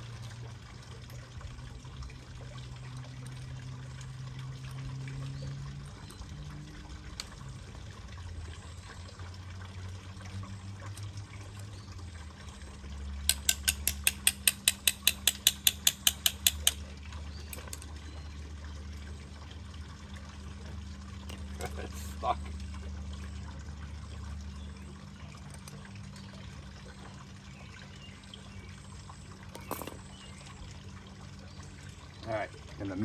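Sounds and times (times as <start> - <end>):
low steady hum: 0.0 - 33.0
sharp mechanical clicks: 13.3 - 16.8.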